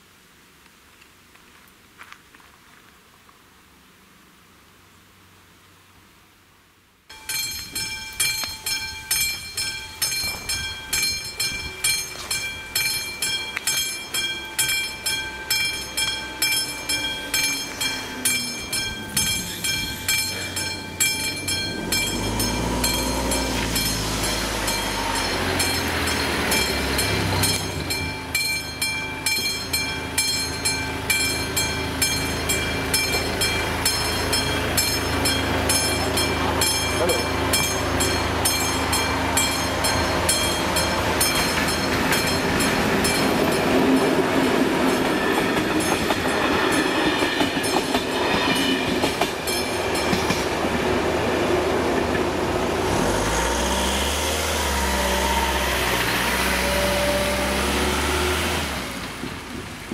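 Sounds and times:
crossing warning bell ringing: 0:07.1 - 0:59.0
train rumbling: 0:07.1 - 0:59.9.

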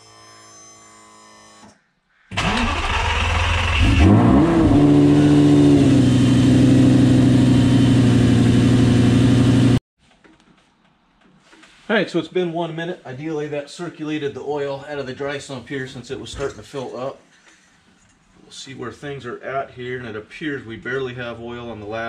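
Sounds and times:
car engine starting and idling: 0:02.4 - 0:09.8.

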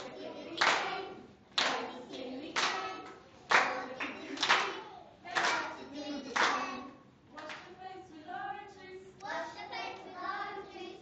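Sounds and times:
children singing: 0:00.0 - 0:07.0
clapping on the beat: 0:00.6 - 0:01.0, 0:01.6 - 0:06.7.

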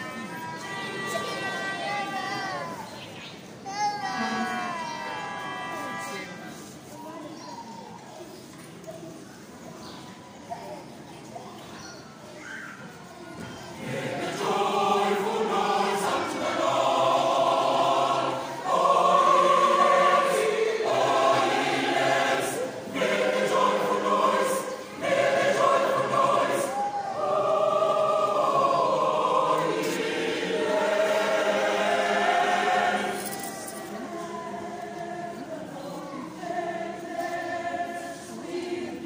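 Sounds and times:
mixed choir singing: 0:00.0 - 0:02.6, 0:13.4 - 0:39.0.

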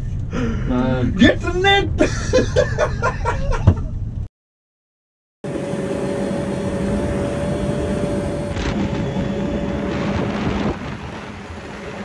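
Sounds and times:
wind noise: 0:06.6 - 0:12.0.

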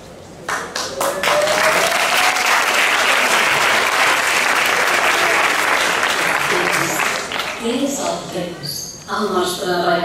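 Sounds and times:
audience applauding: 0:00.5 - 0:07.6.

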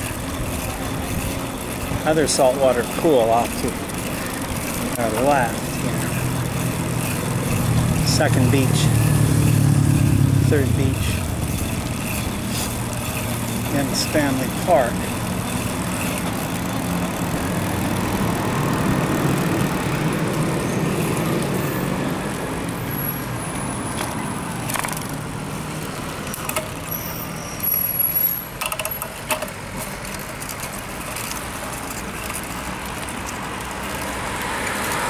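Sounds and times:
wind and tyres rushing: 0:00.0 - 0:35.0
sharp clicks and knocks: 0:23.9 - 0:25.3, 0:26.1 - 0:26.9, 0:28.5 - 0:35.0.

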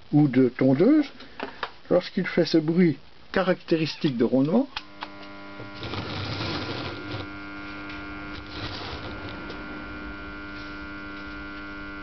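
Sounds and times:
electric motor humming growl: 0:04.9 - 0:12.0.

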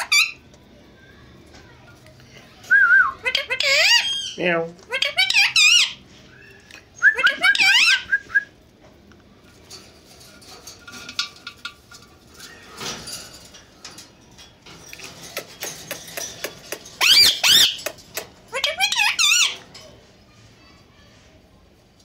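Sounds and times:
parakeet squeaky chatter: 0:00.0 - 0:00.4, 0:03.2 - 0:06.6, 0:07.2 - 0:08.1, 0:15.4 - 0:19.7.

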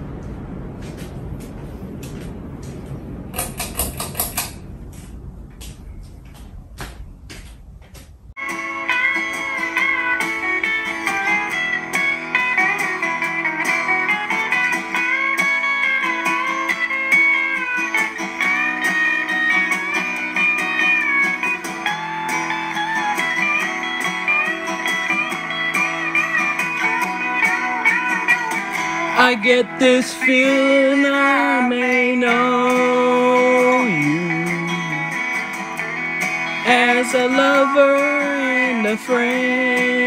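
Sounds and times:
instrumental guitar music: 0:08.4 - 0:40.0.

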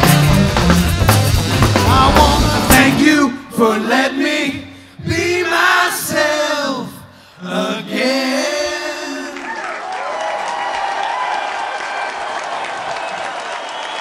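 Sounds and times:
live band playing: 0:00.0 - 0:03.5
man singing with backing voices: 0:01.8 - 0:09.5
crowd applause: 0:09.4 - 0:14.0.

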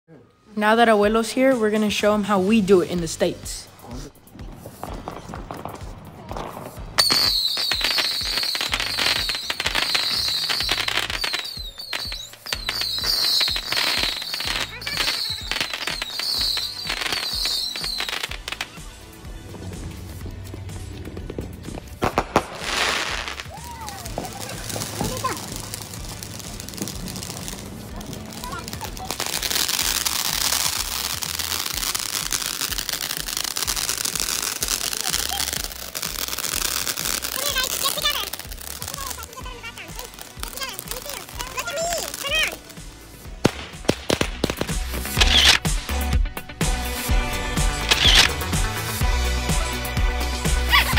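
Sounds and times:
background music with beat: 0:01.0 - 0:50.9
firework crackling and popping: 0:01.0 - 0:50.9
firework whistle: 0:07.0 - 0:18.5, 0:22.0 - 0:27.1, 0:29.2 - 0:39.2, 0:44.5 - 0:45.6, 0:47.8 - 0:48.4.

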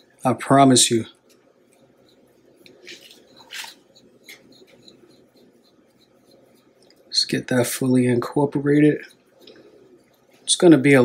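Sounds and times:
whisk scraping sugar in bowl: 0:00.0 - 0:11.0.

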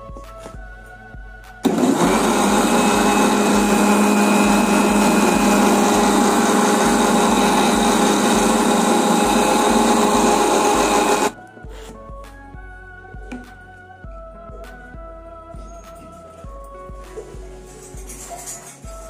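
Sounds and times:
mixer grinder whirring: 0:01.6 - 0:11.4.

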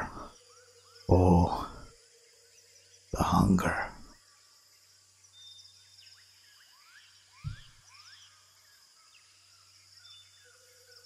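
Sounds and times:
high insect buzz: 0:00.0 - 0:11.0
low thump: 0:07.4 - 0:07.8.

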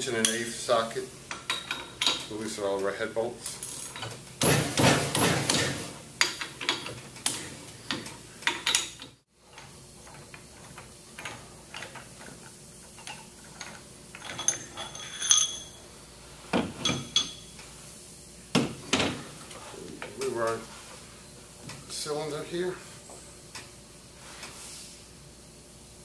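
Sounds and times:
metal clinks: 0:14.2 - 0:15.8.

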